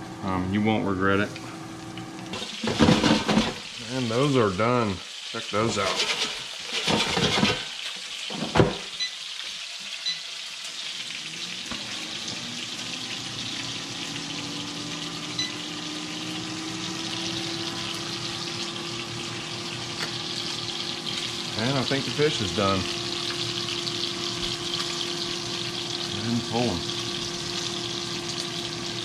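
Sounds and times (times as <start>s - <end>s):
faint hum rising in pitch: 0.0s - 2.4s, 11.1s - 29.0s
fish frying in hot oil: 1.8s - 29.0s.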